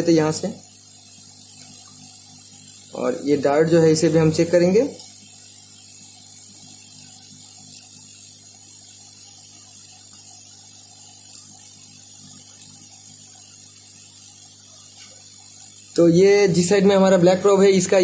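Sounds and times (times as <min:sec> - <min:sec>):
low machine hum: 0:00.0 - 0:18.0
faint high whine: 0:02.7 - 0:05.4.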